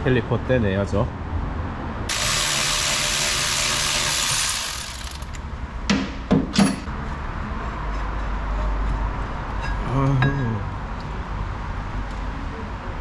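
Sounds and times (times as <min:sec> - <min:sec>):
power ratchet running: 0:02.1 - 0:05.4
sharp metal knocks: 0:05.9 - 0:06.9.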